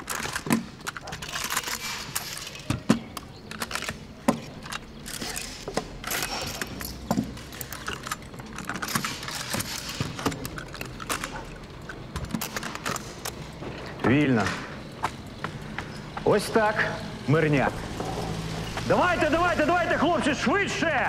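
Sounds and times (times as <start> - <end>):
rifle parts clicking and clacking: 0.0 - 16.0.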